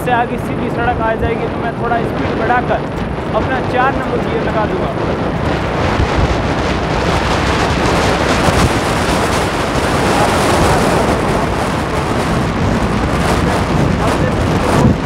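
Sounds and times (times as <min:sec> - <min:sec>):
motorcycle engine running: 0:00.0 - 0:15.0
wind rush on microphone: 0:00.0 - 0:15.0.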